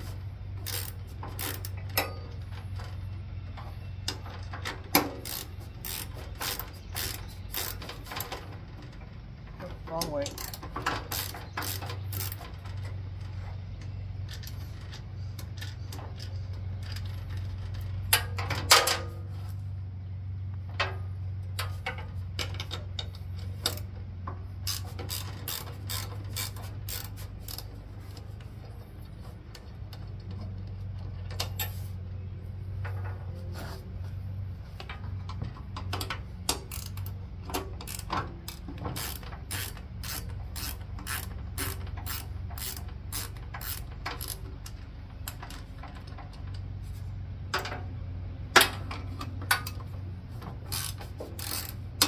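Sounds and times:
ratcheting wrench clicking: 0.6s - 2.1s, 4.9s - 8.9s, 10.2s - 12.9s, 22.4s - 23.9s, 24.6s - 28.2s, 35.8s - 46.6s, 50.6s - 52.0s.

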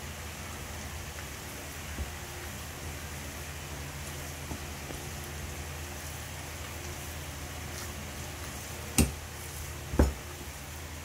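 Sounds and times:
steady hiss: 0.0s - 11.0s
hands kneading mixture in bowl: 1.0s - 11.0s.

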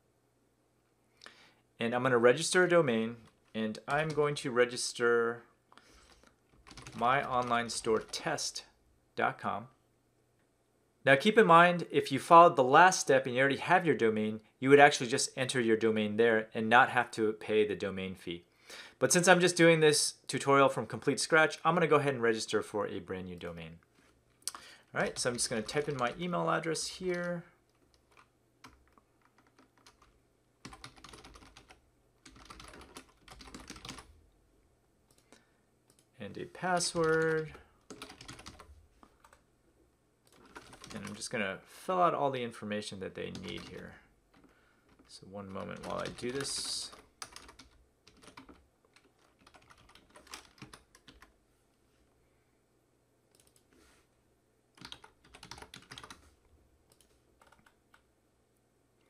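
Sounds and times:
typing on computer keyboard: 6.1s - 8.2s, 27.8s - 34.1s, 36.8s - 39.4s, 40.3s - 41.2s, 43.3s - 51.3s, 54.8s - 56.2s, 56.9s - 58.0s.

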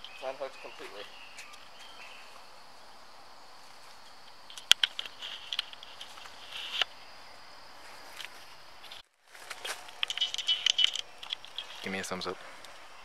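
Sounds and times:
faint high insect drone: 0.0s - 13.0s
sharp clicks and scrapes: 4.2s - 6.9s, 8.2s - 12.0s.

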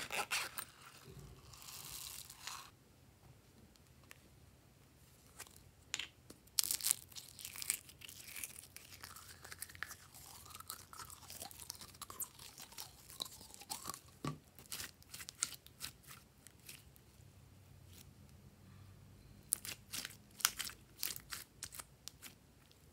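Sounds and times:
slime crackling and squeaking: 6.6s - 16.9s, 19.5s - 22.4s.

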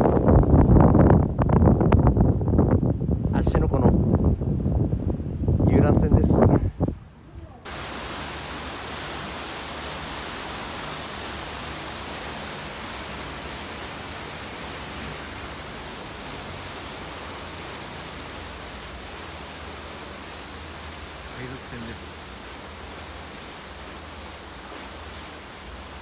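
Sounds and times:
wind: 0.0s - 26.0s
wake water churning: 7.6s - 26.0s.

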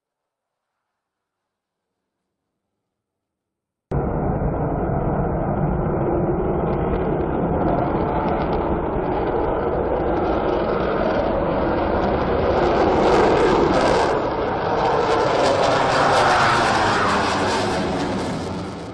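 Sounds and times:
fighter jet engine roar: 3.9s - 18.9s.

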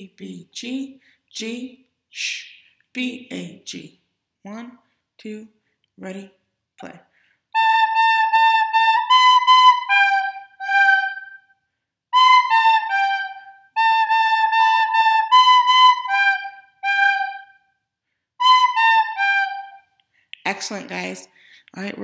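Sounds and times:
recorder playing simple melody: 7.6s - 17.7s, 18.4s - 19.9s.

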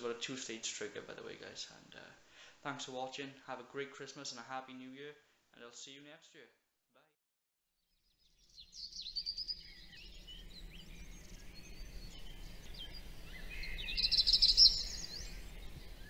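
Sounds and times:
faint low background noise: 0.0s - 6.7s, 8.5s - 16.0s
birds chirping and singing: 8.4s - 16.0s.

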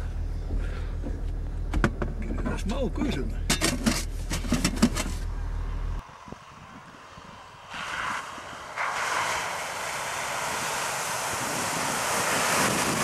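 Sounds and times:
engine drone: 0.0s - 13.0s
wind on microphone: 6.0s - 13.0s
water and mud rushing: 7.7s - 13.0s.

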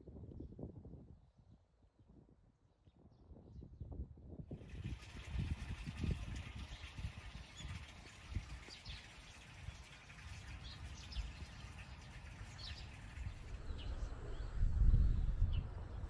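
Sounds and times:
low rumble: 13.2s - 16.0s.

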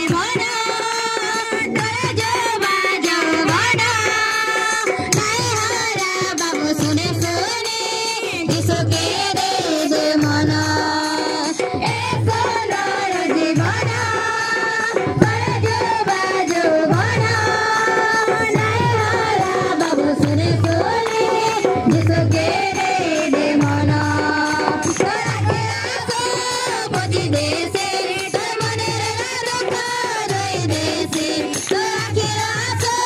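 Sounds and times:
girls and children singing: 0.0s - 33.0s
low drum beat: 15.1s - 16.1s, 18.6s - 27.6s
hands clapping: 20.2s - 22.2s, 24.6s - 25.4s, 31.1s - 32.0s.

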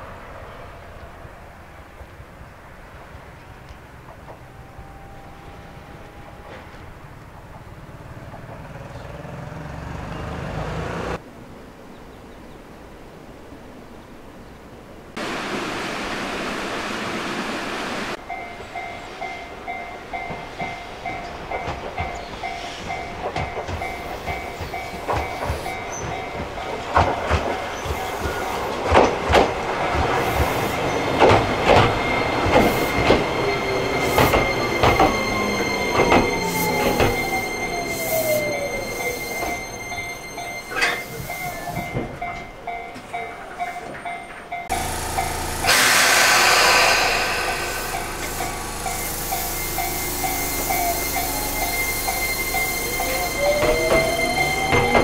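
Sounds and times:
train wheels clicking over rail joints: 6.0s - 9.1s, 18.1s - 55.0s
repeating bell-like alarm tone: 32.0s - 42.4s, 47.4s - 55.0s.

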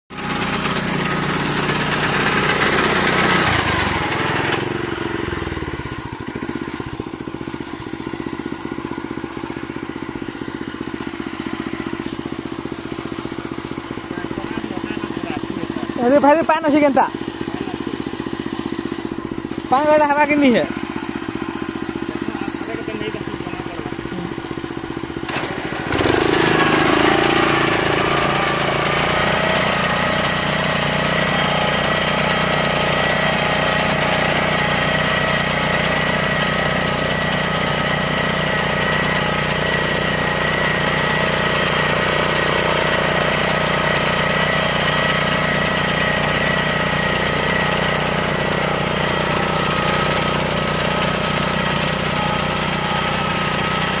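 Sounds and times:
reaper engine running: 0.1s - 54.0s.

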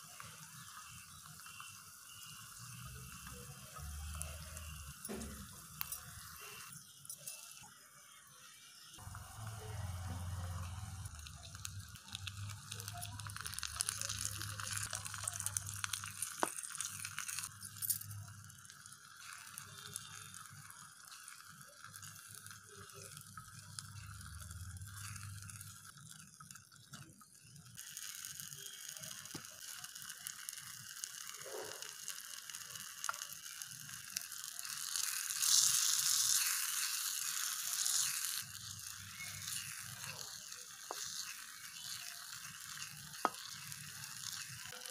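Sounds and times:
vegetables sizzling in oil: 0.0s - 44.9s
wooden spoon stirring: 9.0s - 26.2s, 34.6s - 44.9s.

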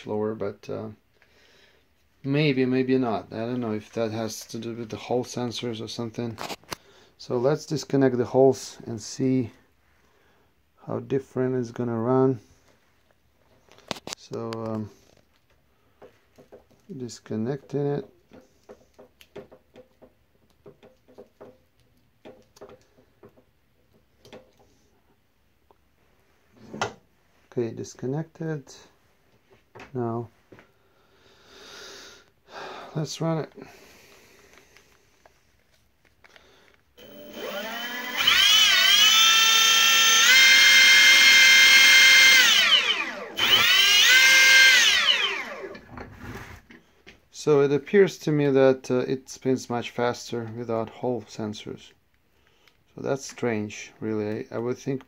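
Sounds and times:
electric motor whine: 37.0s - 45.8s.

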